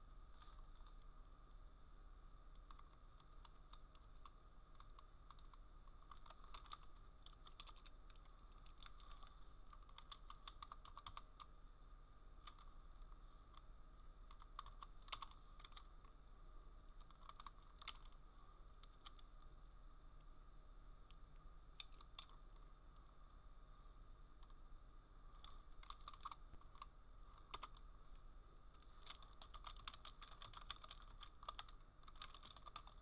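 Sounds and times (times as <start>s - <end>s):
faint steady hum: 0.0s - 33.0s
typing on computer keyboard: 2.7s - 11.5s, 12.4s - 12.7s, 14.3s - 15.9s, 17.0s - 18.2s, 25.4s - 27.8s, 28.8s - 33.0s.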